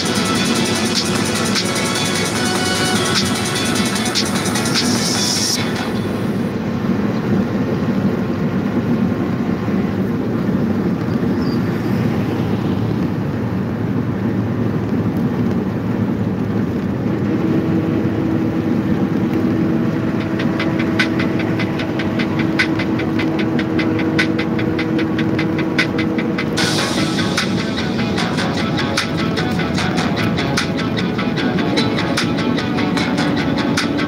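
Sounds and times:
fast even ticking: 0.0s - 6.3s, 18.4s - 34.0s
engine and tyre noise: 0.0s - 34.0s.

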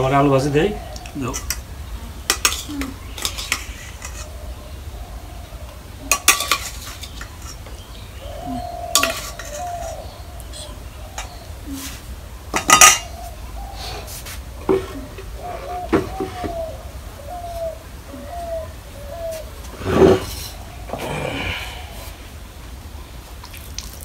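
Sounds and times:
steel bowls and plates clinking: 2.3s - 4.3s, 6.1s - 7.6s, 8.9s - 10.0s, 12.6s - 13.1s
spoon scraping: 9.0s - 9.9s.

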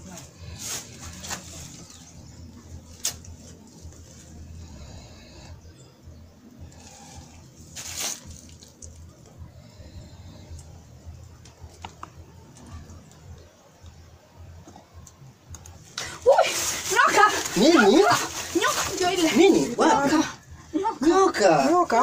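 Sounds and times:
faint rustles: 0.0s - 5.7s, 6.6s - 13.4s, 15.7s - 19.8s.

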